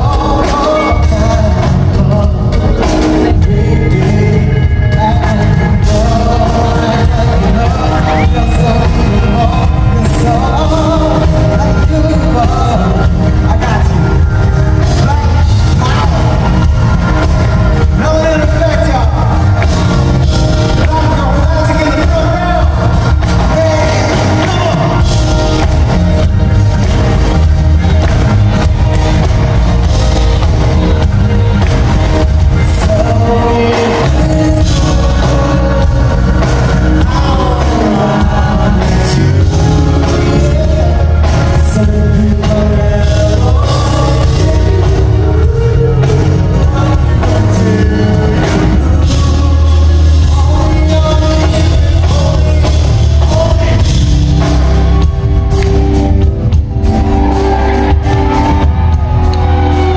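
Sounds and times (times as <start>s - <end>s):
man singing: 0.0s - 56.2s
live band playing: 0.0s - 59.9s.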